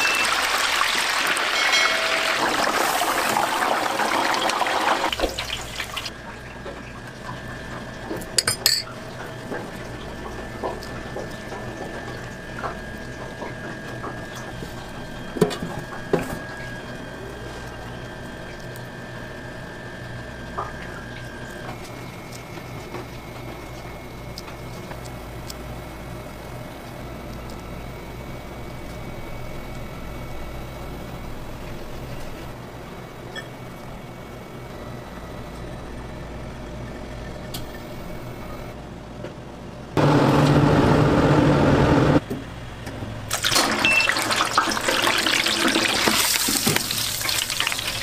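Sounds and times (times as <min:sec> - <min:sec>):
deep-fryer oil sizzling: 0:00.0 - 0:32.6, 0:43.3 - 0:48.0
kitchen equipment hum: 0:00.0 - 0:48.0
metal tongs clinking: 0:08.4 - 0:08.9.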